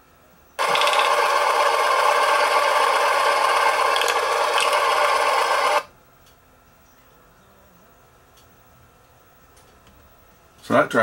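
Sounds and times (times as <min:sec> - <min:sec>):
mechanical clatter: 0:00.6 - 0:05.8.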